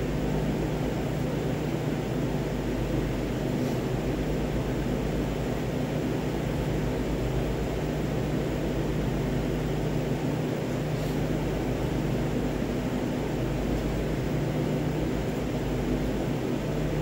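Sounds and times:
kitchen equipment fan hum: 0.0s - 17.0s.

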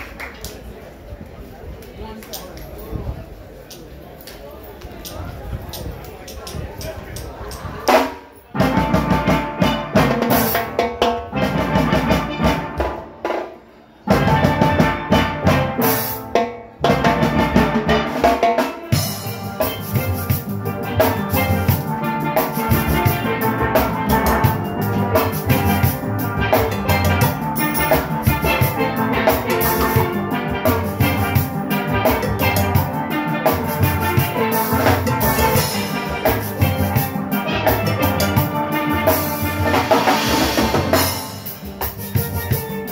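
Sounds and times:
drum kit and percussion: 5.0s - 42.9s
steelpans playing: 18.8s - 42.9s.

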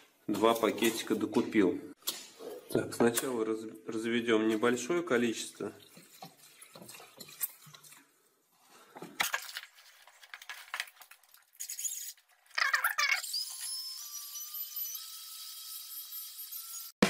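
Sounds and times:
water glugging into a bucket: 5.4s - 9.2s.

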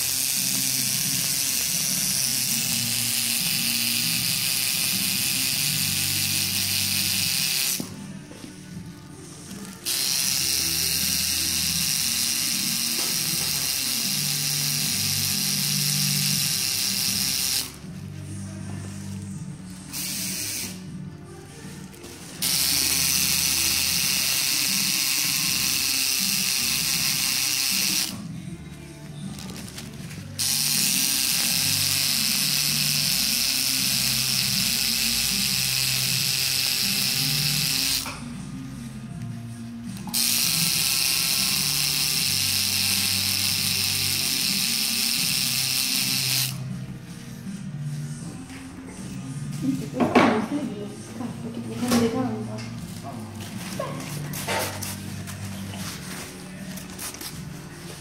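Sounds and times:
tattoo machine buzzing: 0.0s - 7.9s, 9.5s - 17.9s, 19.9s - 21.0s, 22.4s - 28.3s, 30.4s - 38.3s, 40.0s - 46.7s
background music: 0.0s - 58.0s.

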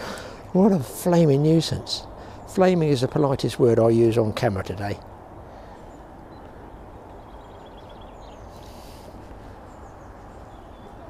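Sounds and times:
soft hiss: 5.0s - 11.0s
faint bird chirps: 5.6s - 11.0s.

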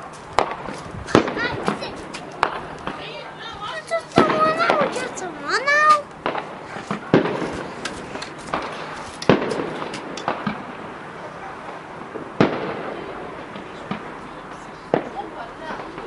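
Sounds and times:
fireworks crackling: 0.0s - 16.0s
fireworks shells bursting: 3.7s - 14.3s.

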